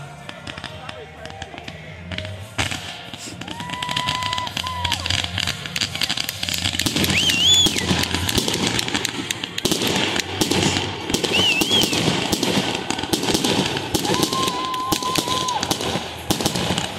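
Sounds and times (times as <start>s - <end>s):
fireworks barrage crackling: 0.0s - 16.9s
high warbling whistle: 7.0s - 8.0s, 11.2s - 12.0s.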